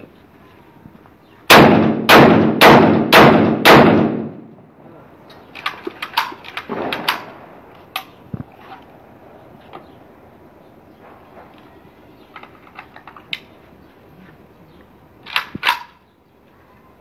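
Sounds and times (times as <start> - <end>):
shotgun shots with echo: 1.5 - 4.5, 6.7 - 7.5.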